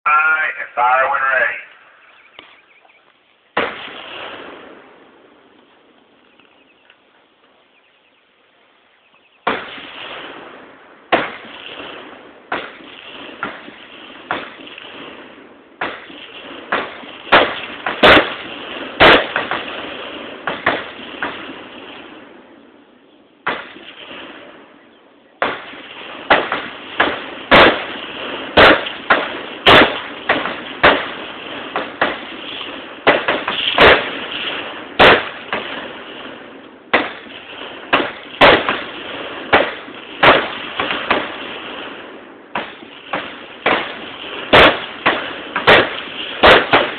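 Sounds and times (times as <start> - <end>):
machine-gun fire: 9.5 - 22.1, 25.4 - 46.9.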